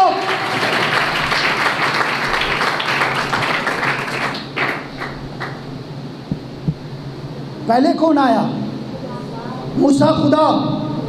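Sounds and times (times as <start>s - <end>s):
congregation clapping: 0.0s - 5.7s
short low thumps: 6.2s - 7.0s.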